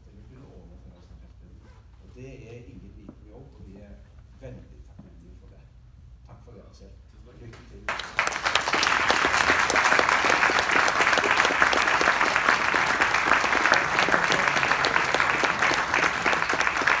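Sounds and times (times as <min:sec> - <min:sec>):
crowd applauding: 0:07.9 - 0:17.0.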